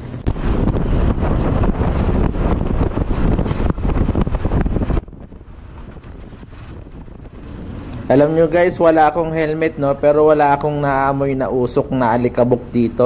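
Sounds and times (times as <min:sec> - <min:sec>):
wind buffeting microphone: 0:00.0 - 0:13.0
road and traffic noise: 0:06.8 - 0:10.4.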